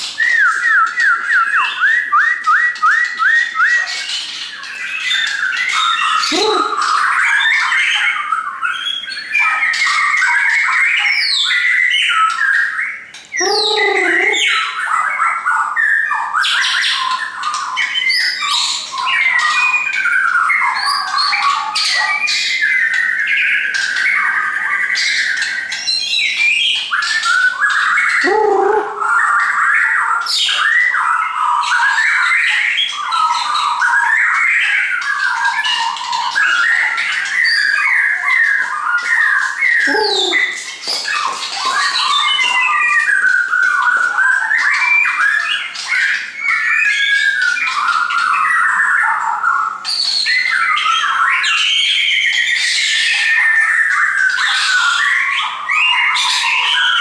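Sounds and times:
bird singing whistles and trills: 0.0s - 57.0s
deep downward-sliding bird call: 6.2s - 7.0s, 28.2s - 29.2s, 39.8s - 40.6s.

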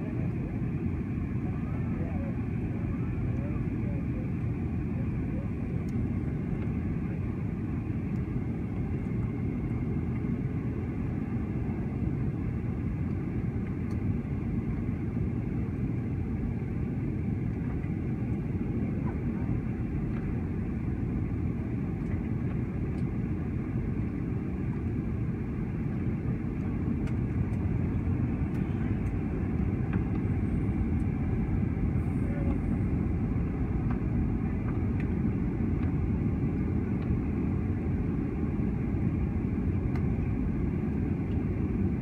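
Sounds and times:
jet engines rumbling: 0.0s - 42.0s.

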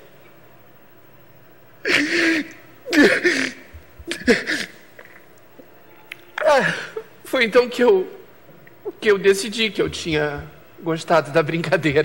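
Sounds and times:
man imitating crying sobs: 1.8s - 5.1s, 6.4s - 7.2s.

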